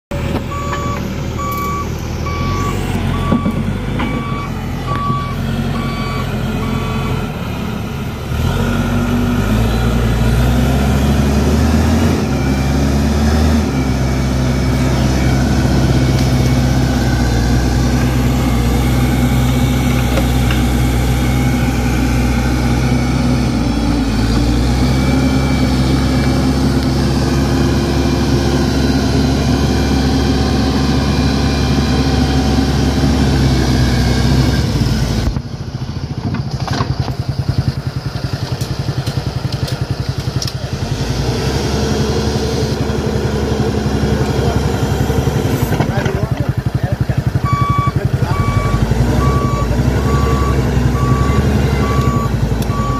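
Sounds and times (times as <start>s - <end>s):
diesel engine running: 0.0s - 52.9s
reversing alarm beeping: 0.4s - 7.4s, 9.6s - 34.9s, 47.4s - 52.9s.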